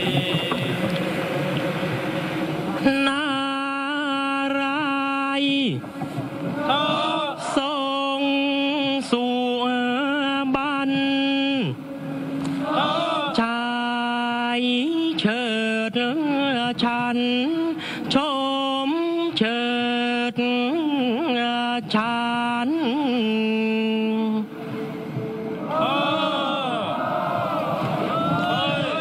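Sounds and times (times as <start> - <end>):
solo voice singing held notes: 6.6 - 29.0.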